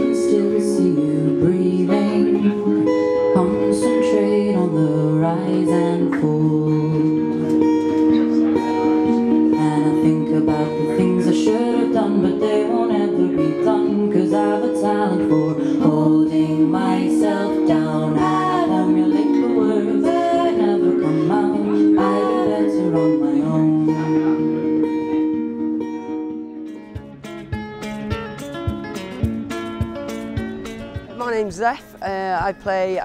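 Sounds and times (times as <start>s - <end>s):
woman singing: 0.0s - 7.6s, 9.4s - 24.7s
guitar chords: 0.0s - 33.0s.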